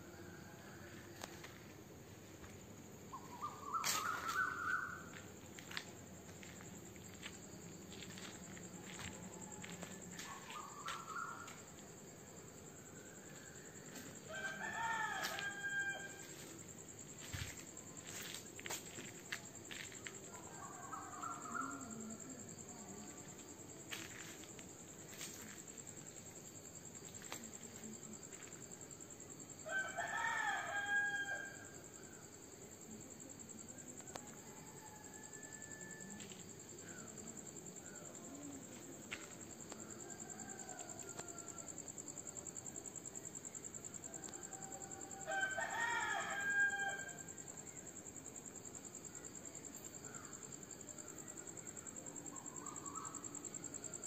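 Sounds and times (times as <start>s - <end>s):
crickets trilling: 0.0s - 54.0s
rooster crowing: 14.2s - 16.5s, 29.6s - 31.8s, 34.1s - 36.3s, 39.9s - 41.9s, 43.9s - 47.3s.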